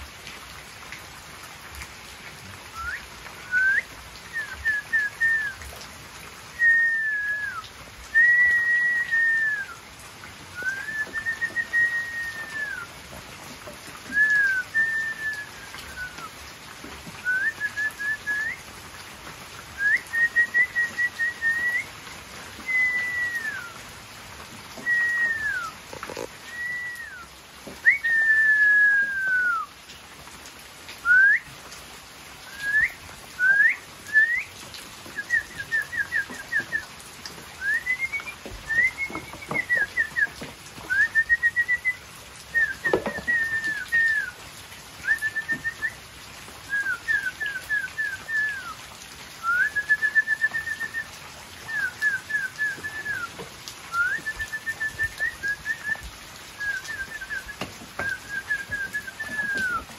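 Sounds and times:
person whistling: 0:02.8 - 0:05.6, 0:06.6 - 0:09.8, 0:10.6 - 0:12.9, 0:14.1 - 0:16.3, 0:17.2 - 0:18.6, 0:19.8 - 0:21.9, 0:22.6 - 0:23.8, 0:24.8 - 0:25.8, 0:26.5 - 0:29.7, 0:31.0 - 0:31.5, 0:32.5 - 0:34.5, 0:35.2 - 0:36.9, 0:37.6 - 0:44.4, 0:45.0 - 0:46.0, 0:46.7 - 0:48.8, 0:49.4 - 0:59.9.

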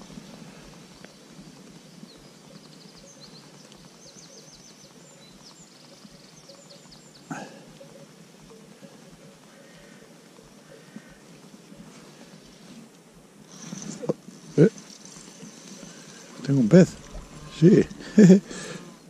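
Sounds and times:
songbird chirping and trilling: 0:00.0 - 0:19.0.

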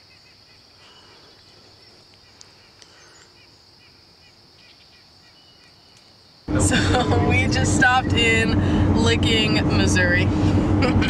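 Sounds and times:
bird chirps: 0:00.0 - 0:06.2
insect drone: 0:00.0 - 0:06.5.

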